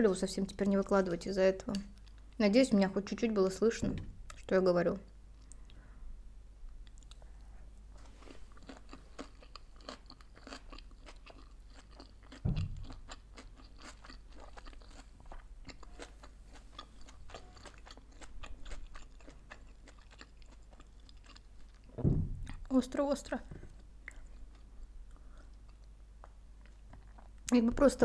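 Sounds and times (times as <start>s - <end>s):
chewing with crisp crunches: 1.7s - 2.4s, 6.7s - 27.6s
low thump: 12.4s - 13.0s, 21.9s - 22.6s.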